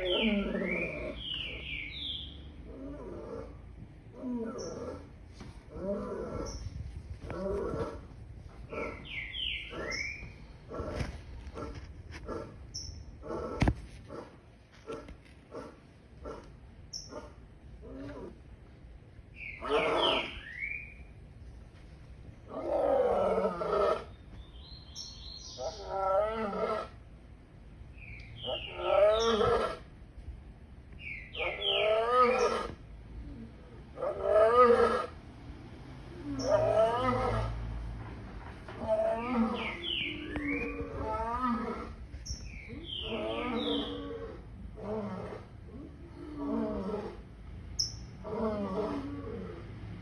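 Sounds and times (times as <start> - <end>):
lion grunting calls: 0.0 - 1.7, 2.6 - 12.6, 28.4 - 29.9, 42.7 - 47.4
lion roaring: 2.6 - 6.6, 22.5 - 24.1, 25.6 - 27.0, 36.1 - 37.6, 38.8 - 42.0, 42.8 - 47.4, 48.2 - 49.7.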